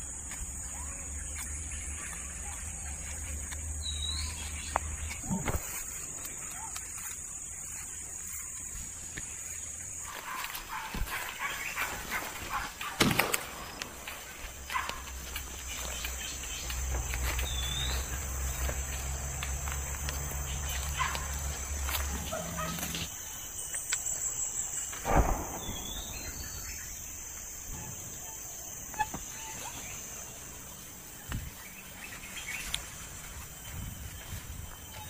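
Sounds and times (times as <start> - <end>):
high insect drone: 0.0 - 35.0
dull thump: 25.0 - 26.5.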